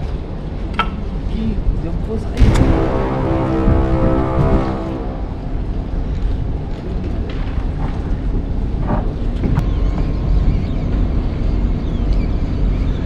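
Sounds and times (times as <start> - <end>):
low rumble: 2.4 - 8.9.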